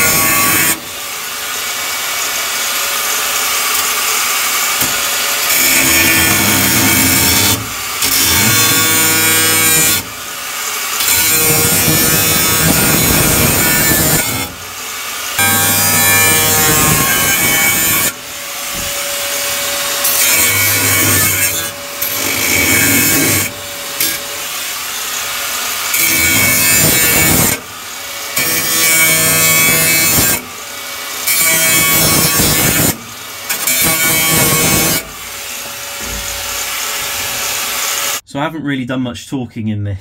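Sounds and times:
angle grinder cutting sheet steel: 0.0s - 38.2s.

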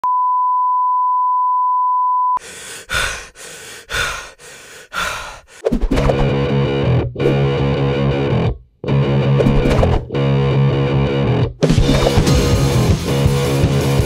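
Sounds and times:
distorted electric guitar music: 6.2s - 14.0s.

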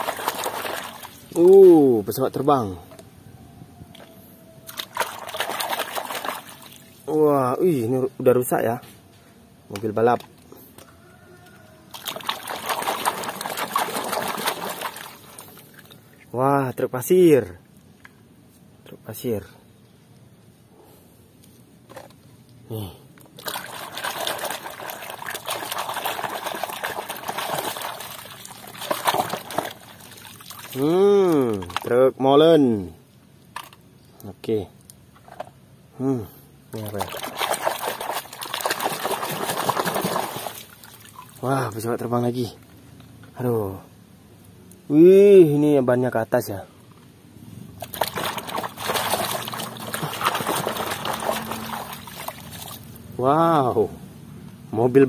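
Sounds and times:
hand splashing in muddy water: 0.0s - 1.2s, 4.7s - 6.9s, 11.9s - 15.6s, 23.4s - 31.9s, 36.8s - 41.4s, 47.8s - 52.9s
hand sloshing through water: 4.7s - 7.0s, 11.9s - 15.9s, 47.8s - 52.9s
water streaming off toy: 47.8s - 52.9s.

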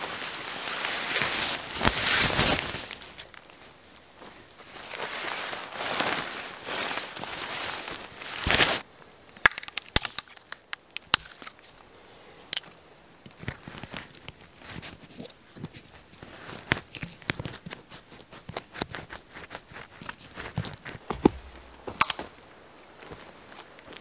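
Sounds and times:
tarp fabric rustling: 0.0s - 8.8s, 16.0s - 24.0s
twigs clicking and crackling: 0.5s - 5.3s, 5.9s - 11.8s, 12.4s - 24.0s.

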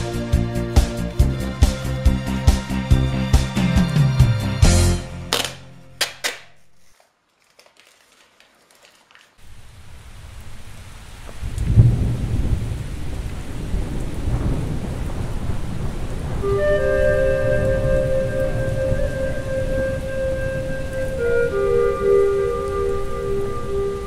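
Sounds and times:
rain-like hiss: 0.0s - 3.1s, 7.8s - 24.0s
background music: 0.0s - 6.4s, 16.4s - 24.0s.

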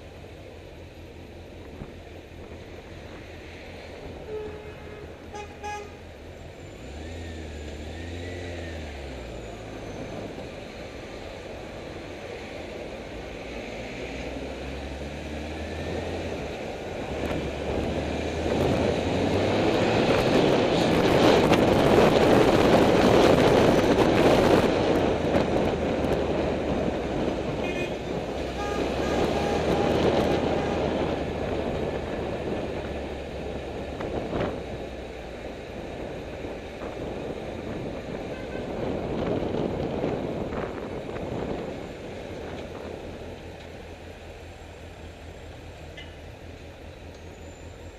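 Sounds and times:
wind rush: 15.6s - 43.4s.

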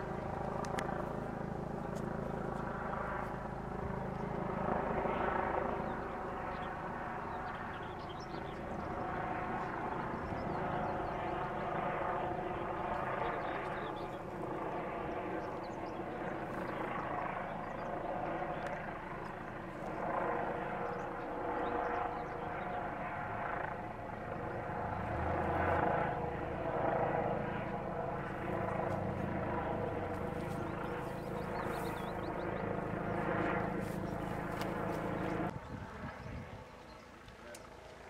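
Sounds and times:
engine drone: 23.2s - 38.0s.

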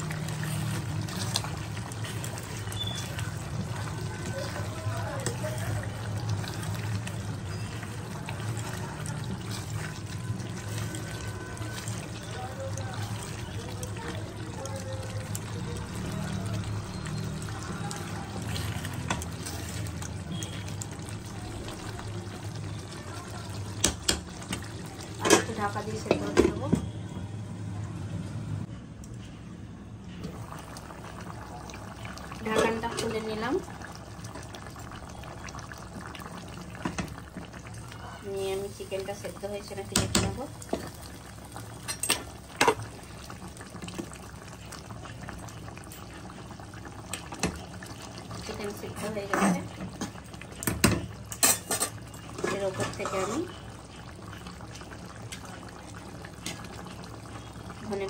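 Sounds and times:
spatula stirring thick gravy: 0.0s - 21.3s
curry simmering and bubbling: 0.0s - 28.7s, 30.1s - 58.0s.

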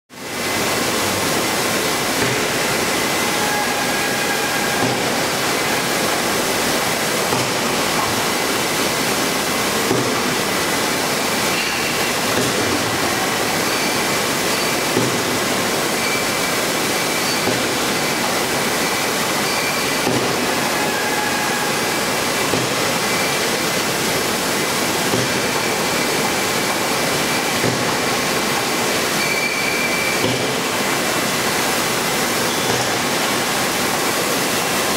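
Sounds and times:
bottling machinery din: 0.3s - 34.9s
faint high machine whines: 13.1s - 14.9s, 15.9s - 18.3s, 19.1s - 20.0s, 29.1s - 30.3s.

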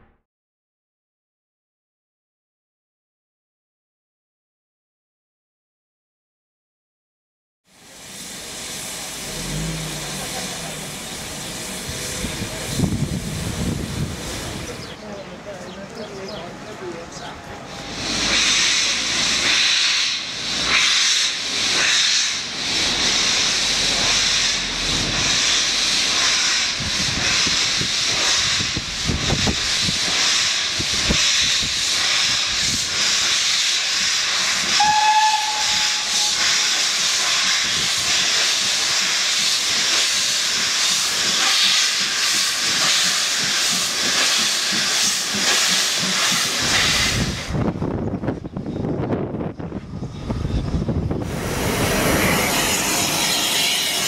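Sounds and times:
steam hissing: 7.7s - 15.2s, 17.7s - 48.6s, 49.9s - 54.0s
steam whistle toot: 34.7s - 36.8s.

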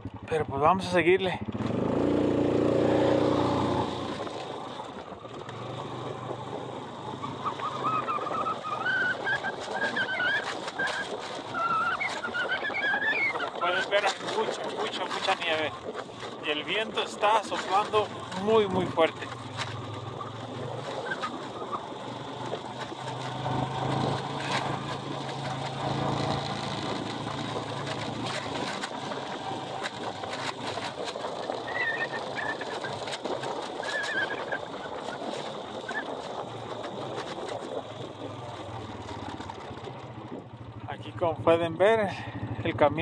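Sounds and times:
vehicle engine running: 0.0s - 43.0s
short high squeaks: 7.2s - 14.3s, 33.7s - 36.2s.

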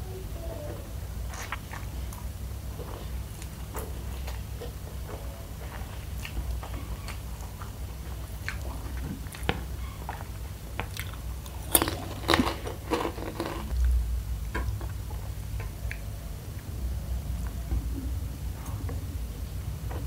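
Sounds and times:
chewing noodles: 1.2s - 13.8s
crunching crispy food: 5.0s - 13.8s.

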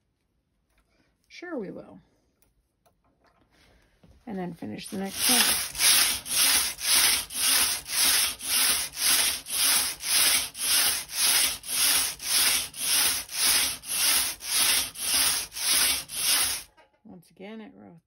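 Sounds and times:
knitting machine carriage swishing: 5.0s - 16.7s.

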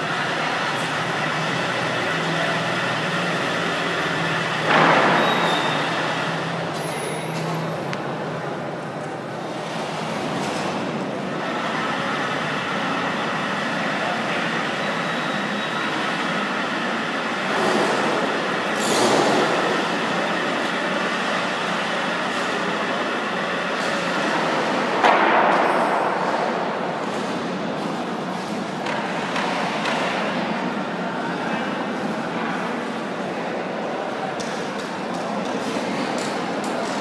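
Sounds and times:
exhibition hall din: 0.0s - 37.0s.

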